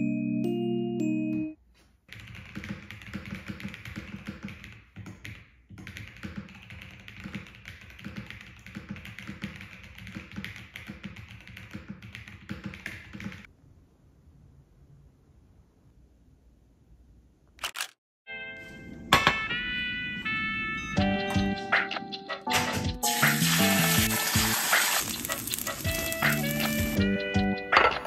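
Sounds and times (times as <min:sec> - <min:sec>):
mechanical keyboard typing: 0:02.1 - 0:13.5.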